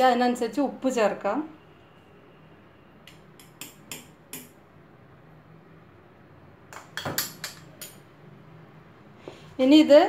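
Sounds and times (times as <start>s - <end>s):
kitchenware clicks and knocks: 6.7s - 8.0s.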